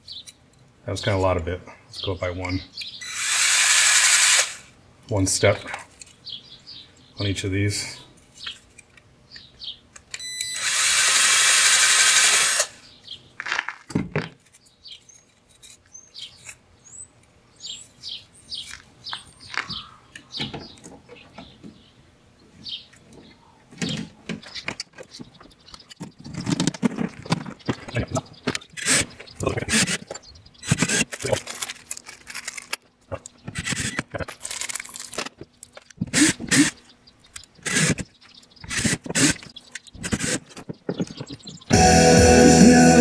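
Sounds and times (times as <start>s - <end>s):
birds chirping: 0.0s - 3.2s, 5.1s - 9.9s, 14.5s - 31.5s, 33.0s - 34.3s, 35.3s - 43.0s
cordless drill running: 3.0s - 4.7s, 10.2s - 12.8s, 30.6s - 31.1s, 36.1s - 36.7s, 37.6s - 38.0s, 38.7s - 39.4s.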